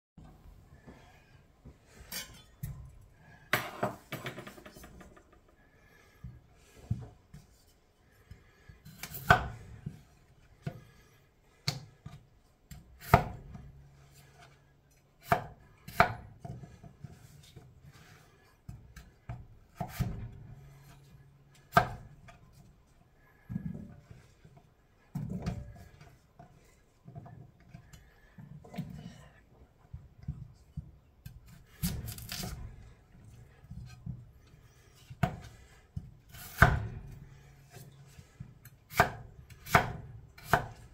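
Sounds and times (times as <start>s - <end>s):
knife chopping potatoes: 8.4s - 10.0s, 11.6s - 13.7s, 15.2s - 22.2s, 30.2s - 34.3s, 35.0s - 40.9s.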